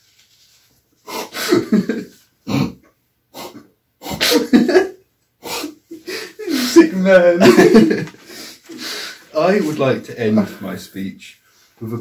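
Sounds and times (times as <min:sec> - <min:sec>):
men laughing: 0:01.4 - 0:02.2, 0:04.2 - 0:05.0, 0:05.6 - 0:08.6.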